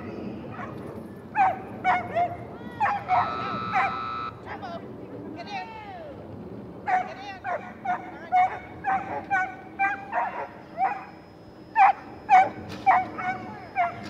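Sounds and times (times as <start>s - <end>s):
dog barking sharply: 1.4s - 4.2s.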